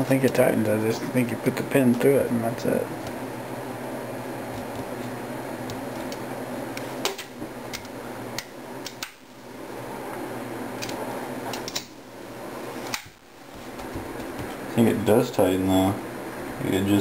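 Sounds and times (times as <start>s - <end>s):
steady background hum: 0.0s - 17.0s.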